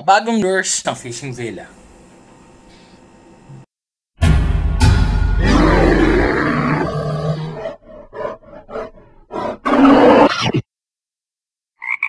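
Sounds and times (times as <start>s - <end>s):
animal roar: 5.4s - 10.6s.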